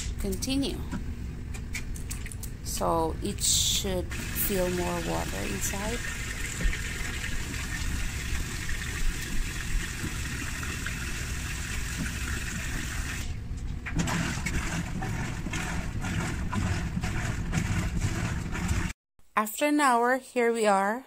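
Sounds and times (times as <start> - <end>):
water rushing into washer tub: 3.9 - 19.0.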